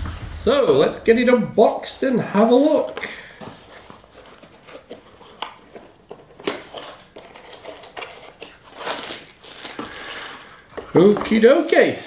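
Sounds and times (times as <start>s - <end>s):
plastic bag crinkling: 6.6s - 10.6s.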